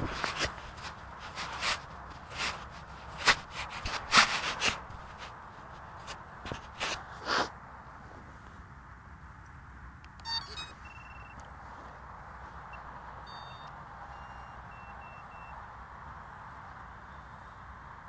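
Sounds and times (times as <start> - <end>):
handling knocks and rustles: 0.0 - 7.2
short startup beeps: 10.2 - 11.4, 13.3 - 15.5.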